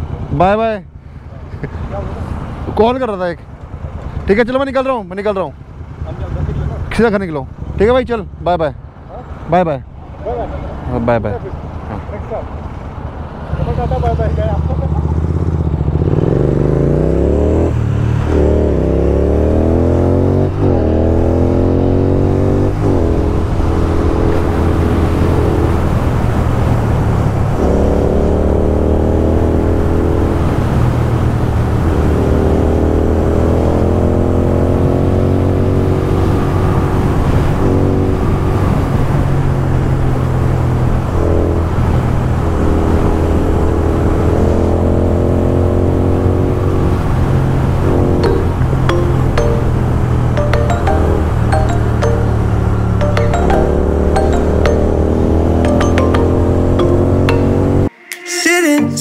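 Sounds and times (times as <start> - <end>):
motorcycle accelerating through gears: 12.6 - 48.4.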